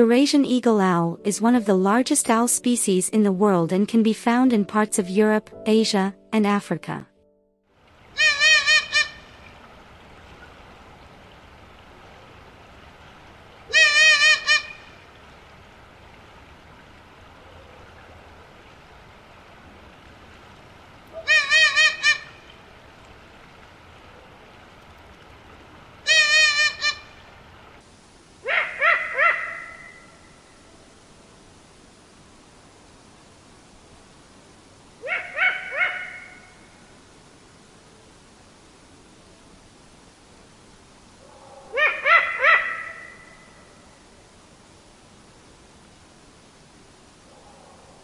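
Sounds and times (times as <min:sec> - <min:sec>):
owl calling: 0:08.2 - 0:09.4, 0:13.7 - 0:15.0, 0:21.1 - 0:22.5, 0:26.0 - 0:27.2, 0:28.4 - 0:30.2, 0:35.0 - 0:36.6, 0:41.2 - 0:43.7
rough owl call: 0:08.2 - 0:09.4, 0:13.7 - 0:14.9, 0:21.1 - 0:22.4, 0:26.0 - 0:27.1, 0:28.4 - 0:30.3, 0:35.0 - 0:36.7, 0:41.2 - 0:43.8.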